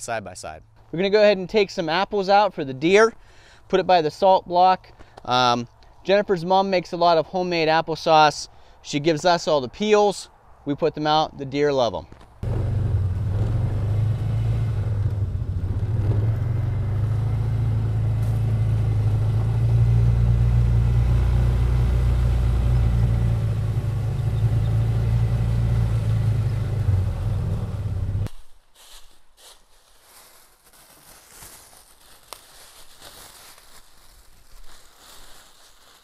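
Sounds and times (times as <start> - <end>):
vehicle engine droning: 12.4 - 28.3.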